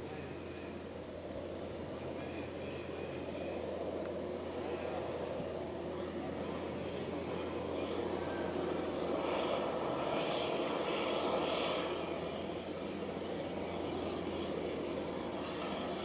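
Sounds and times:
jet engines running: 0.0 - 16.0.

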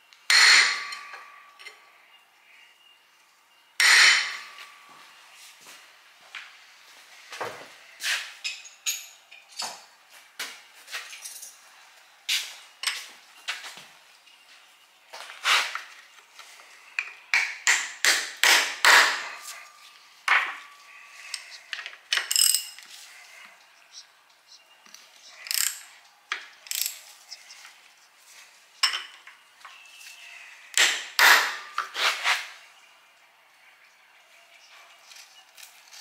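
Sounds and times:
metal tools knocking on metal: 28.8 - 29.3.

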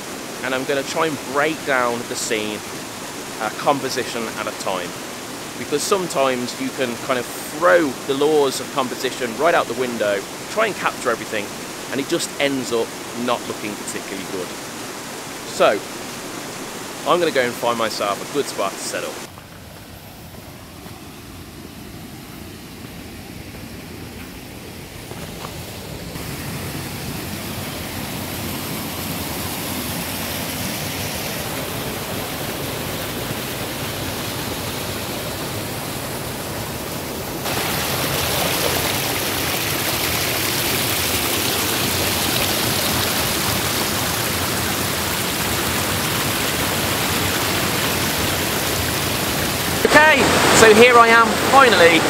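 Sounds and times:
stream water cascading: 0.0 - 52.0.

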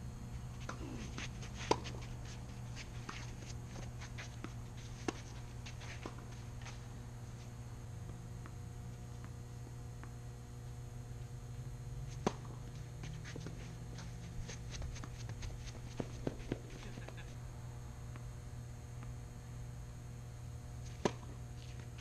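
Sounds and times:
low hum: 0.0 - 22.0
footsteps on court: 0.5 - 10.2, 12.1 - 17.4
racket hitting tennis ball: 0.6 - 6.4, 12.2 - 12.6, 13.2 - 17.2, 20.9 - 21.4.

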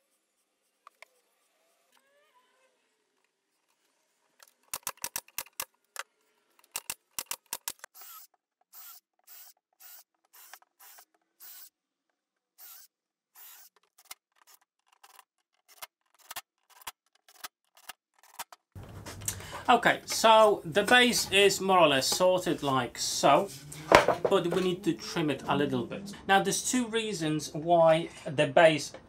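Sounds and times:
drivers driving screws into plywood: 4.4 - 11.8, 12.6 - 18.6.

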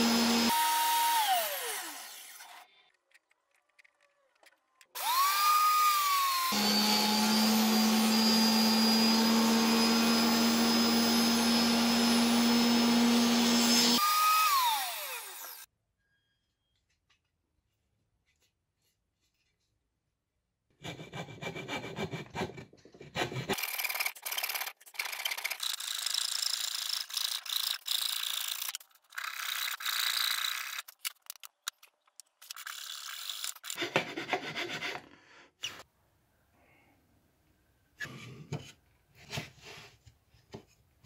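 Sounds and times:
hand file rasping wood: 20.8 - 23.6, 33.8 - 35.3.

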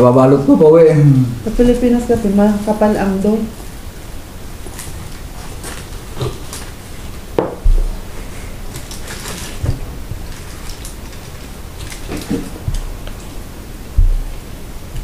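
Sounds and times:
wrappers rustling: 4.6 - 13.4
sharp knock on a table: 7.4 - 7.8
dull thump on a table: 7.4 - 7.9, 14.0 - 14.2.

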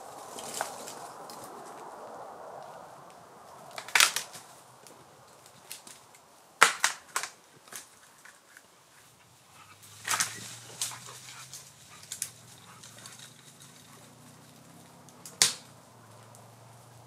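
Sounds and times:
sharp cracks and snaps: 2.6 - 8.7, 9.8 - 16.7.

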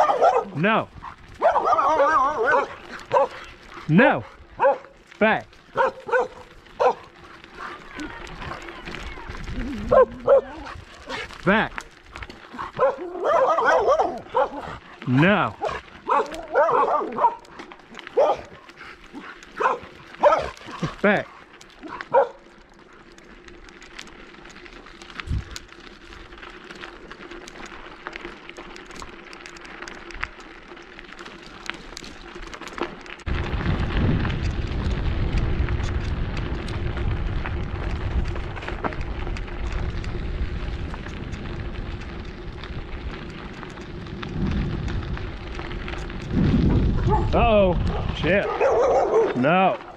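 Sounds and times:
wind rumble on microphone: 0.0 - 4.8, 5.7 - 17.5, 25.1 - 26.4, 33.2 - 49.9
bicycle tyres rolling on gravel: 0.0 - 49.9.

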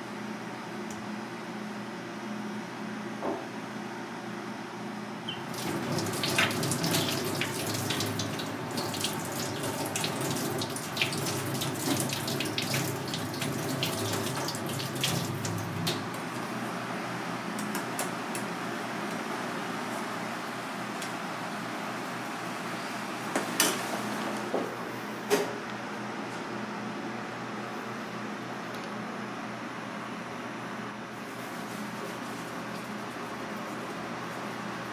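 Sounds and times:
tap water running: 5.3 - 16.2.

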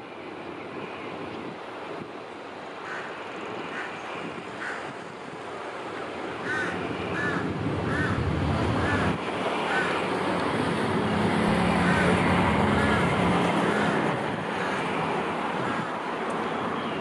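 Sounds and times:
locomotive engine drone: 6.8 - 17.0.

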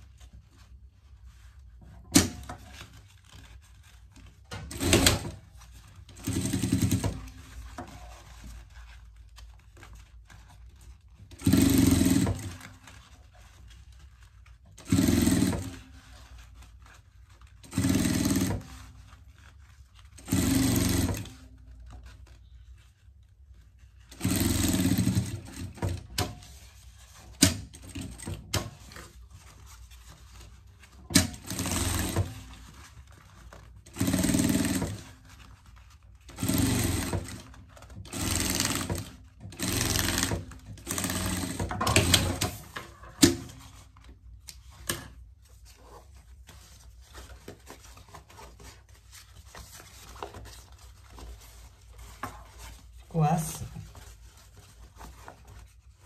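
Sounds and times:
sewing machine stitching: 4.5 - 5.4, 6.1 - 8.1, 11.3 - 12.8, 14.8 - 15.8, 17.6 - 18.8, 20.2 - 21.5, 24.1 - 26.4, 31.1 - 32.6, 33.9 - 35.1, 36.2 - 43.6.

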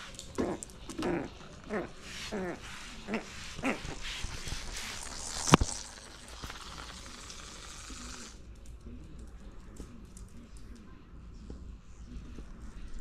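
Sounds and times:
toy ball rolling on wood floor: 0.0 - 8.4.

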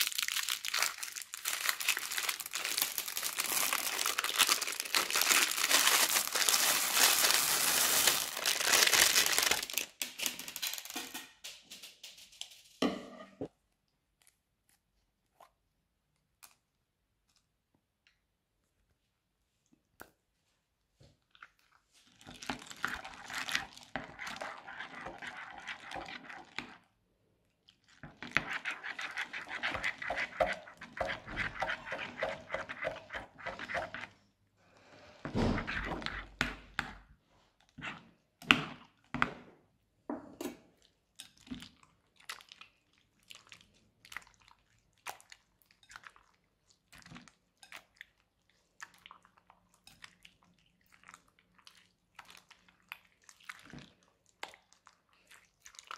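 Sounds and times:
wet squelch of slime: 0.0 - 10.8, 18.6 - 39.1, 40.6 - 55.9
crunchy slime crackling: 0.0 - 10.9.

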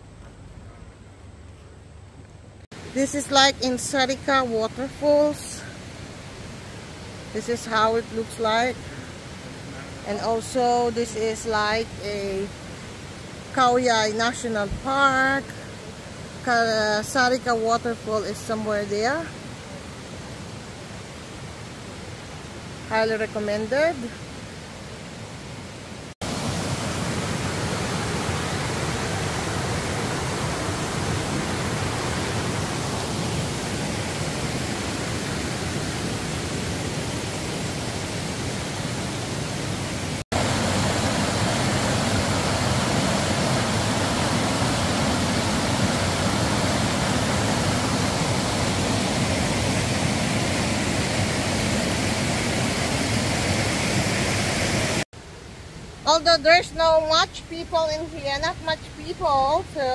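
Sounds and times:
water pouring down waterfall: 40.4 - 53.7.

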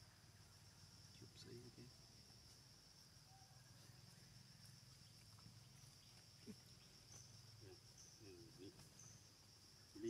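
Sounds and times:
insects droning: 0.0 - 10.0.

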